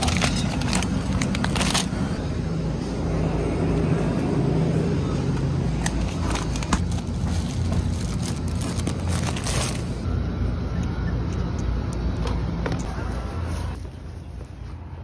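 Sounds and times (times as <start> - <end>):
plastic packaging crinkling: 0.0 - 2.1, 5.9 - 10.0
steady low hum: 0.7 - 15.0.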